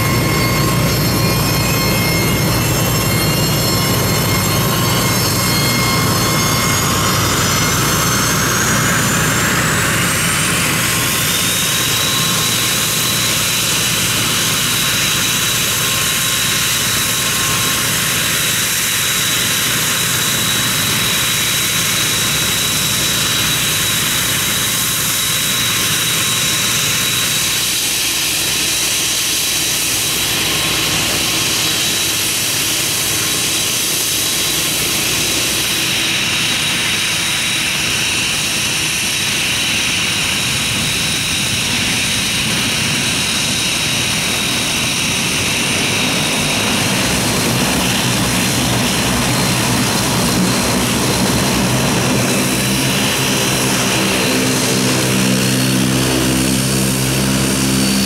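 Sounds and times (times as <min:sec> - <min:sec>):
turboprop engine turbine whine: 0:00.0 - 0:58.0
engine rumble: 0:29.4 - 0:58.0.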